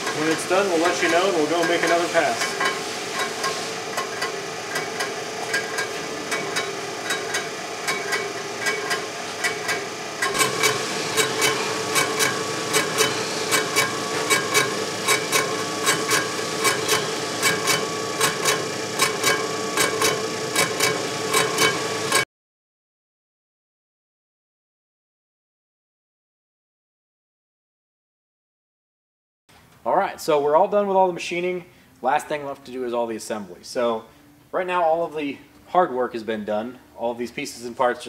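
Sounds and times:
cutter clicking on metal: 0.0s - 22.2s
milling machine hum: 0.0s - 22.2s.

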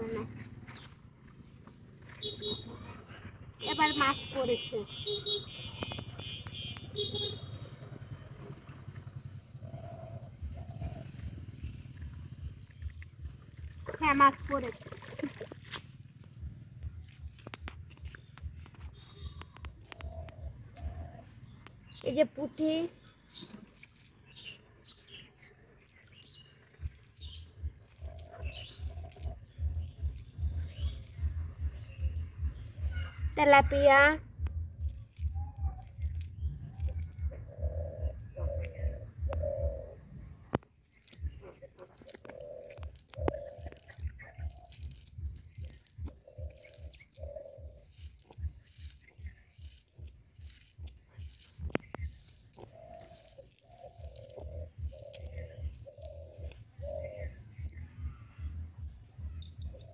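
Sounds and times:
birds chirping: 0.0s - 15.5s, 16.3s - 59.9s
low uneven rumble: 6.8s - 22.1s, 22.8s - 42.1s
low rhythmic thudding: 16.3s - 22.2s, 26.8s - 41.8s, 42.4s - 52.5s, 54.0s - 59.9s
short steady calls: 18.8s - 59.9s
net clicking and crinkling: 23.3s - 33.3s, 34.4s - 37.3s, 40.6s - 56.7s.

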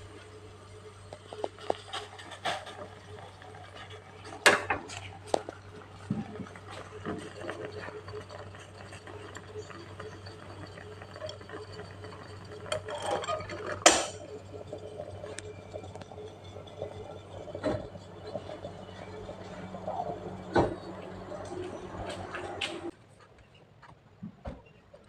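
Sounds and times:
moka pot sputtering and bubbling: 0.0s - 22.9s.

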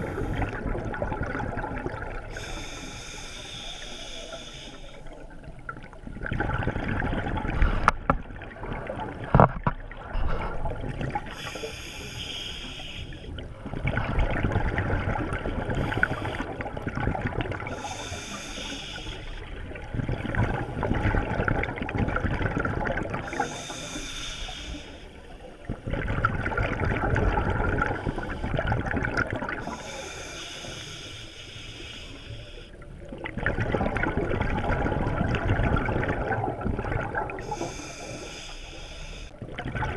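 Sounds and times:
exhaled bubbles rushing: 0.0s - 2.6s, 5.2s - 11.4s, 13.4s - 17.7s, 19.5s - 23.4s, 25.6s - 29.7s, 33.1s - 37.6s, 39.4s - 39.9s
regulator hissing inhale: 2.3s - 5.2s, 11.3s - 13.3s, 17.7s - 19.4s, 23.3s - 25.2s, 29.6s - 32.8s, 37.4s - 39.4s.

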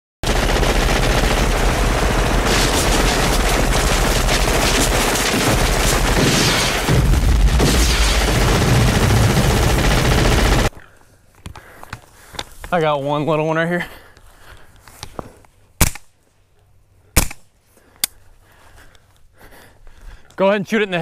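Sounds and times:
rapid rifle fire: 0.2s - 10.7s.

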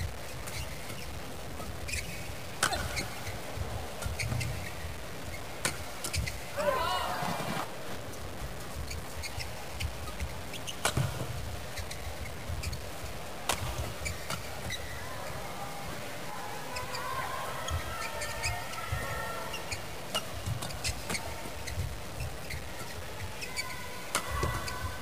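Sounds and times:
low arena background: 0.0s - 25.0s
shoes squeaking on court: 0.2s - 6.6s, 7.2s - 16.0s, 16.7s - 25.0s
rackets striking shuttlecock: 2.6s - 3.2s.

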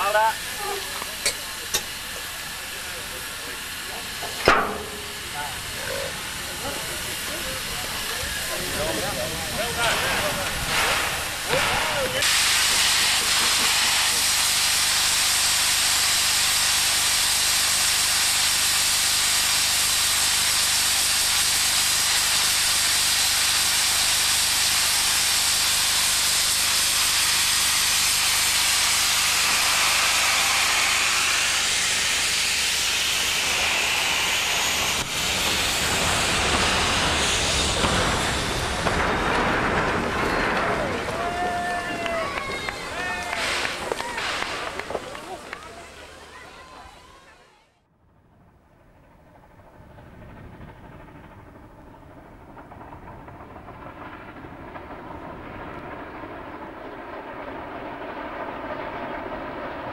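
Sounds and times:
low uneven rumble: 0.0s - 12.2s
steam locomotive hissing: 0.0s - 47.3s.

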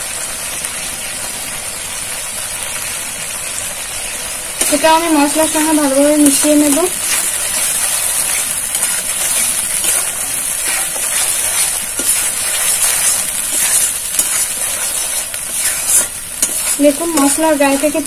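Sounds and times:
paste sizzling in hot oil: 0.0s - 18.0s
spatula scraping pan: 4.6s - 18.0s.

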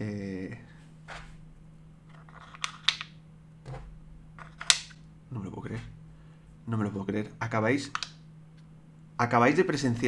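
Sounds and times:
wooden blocks knocking and clicking: 2.1s - 5.0s, 7.8s - 8.2s.

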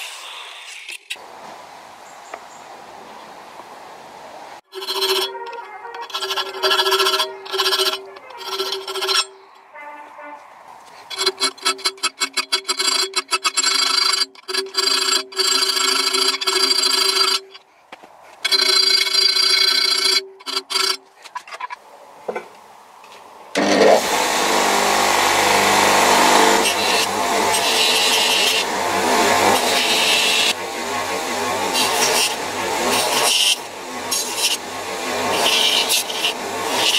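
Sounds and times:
bench grinder motor hum: 4.7s - 9.4s, 11.1s - 17.6s, 18.4s - 21.0s, 23.6s - 36.9s
file rasping on steel blade: 4.7s - 9.5s, 11.0s - 17.6s, 18.4s - 21.7s, 23.6s - 36.9s
blade ringing: 4.7s - 9.6s.

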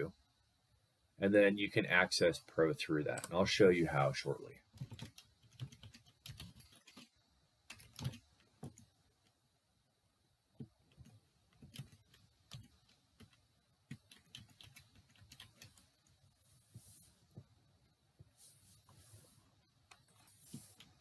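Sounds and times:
computer keyboard typing: 4.7s - 7.1s, 7.7s - 8.9s, 10.9s - 16.0s.

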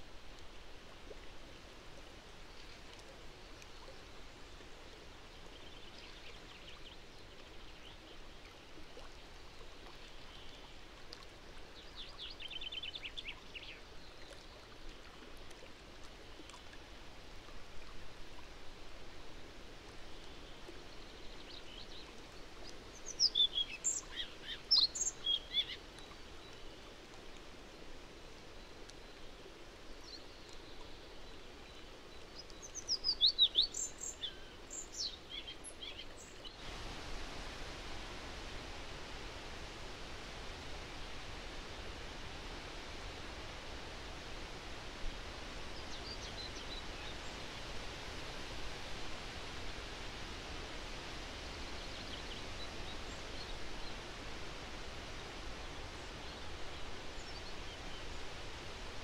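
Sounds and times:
steady outdoor hiss: 0.0s - 59.0s
songbirds singing: 22.7s - 26.9s, 30.0s - 36.8s, 37.7s - 48.2s.

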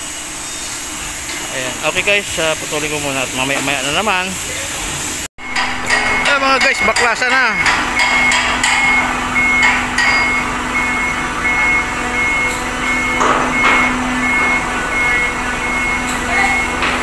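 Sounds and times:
engine hum: 4.4s - 17.0s
reversing alarm beeping: 5.4s - 17.0s.

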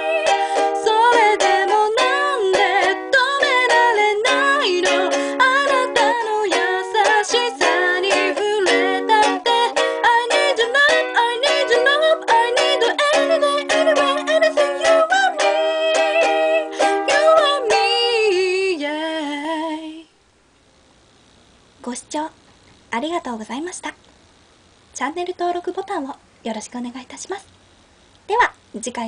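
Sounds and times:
ukulele strumming: 0.0s - 18.9s
person singing: 0.0s - 20.1s.

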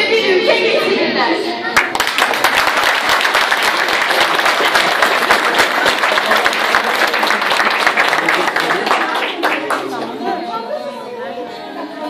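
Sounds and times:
audience applauding: 1.8s - 10.1s.

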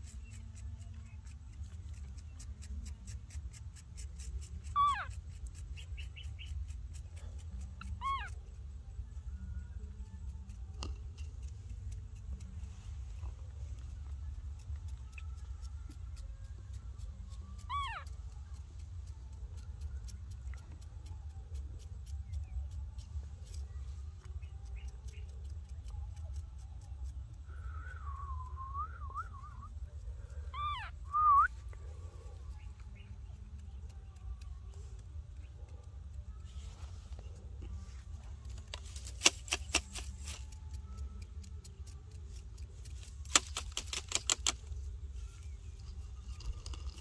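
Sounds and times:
steady low rumble: 0.0s - 38.7s
baby monkey coo calls: 4.6s - 5.2s, 7.8s - 8.4s, 17.6s - 18.2s, 30.5s - 31.0s.

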